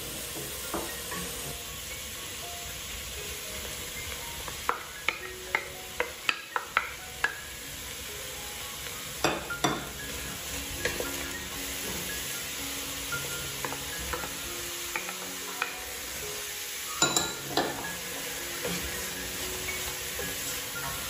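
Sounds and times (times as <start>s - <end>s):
food sizzling in a pot: 0.0s - 21.0s
wooden spatula tapping pot: 4.4s - 7.4s, 10.8s - 11.2s, 13.6s - 16.0s, 17.0s - 18.9s.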